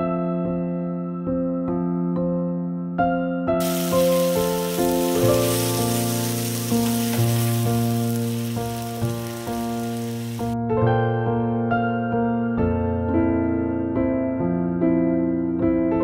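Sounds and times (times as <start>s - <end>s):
soft electric piano music: 0.0s - 16.0s
food sizzling in a wok: 3.6s - 10.6s.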